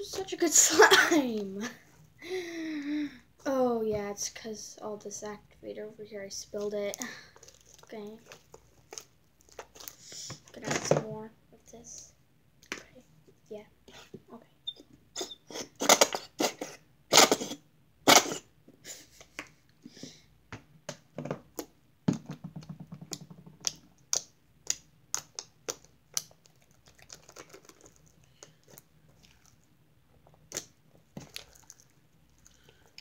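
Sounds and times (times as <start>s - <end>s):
slime clicking and popping: 23.1s - 28.0s.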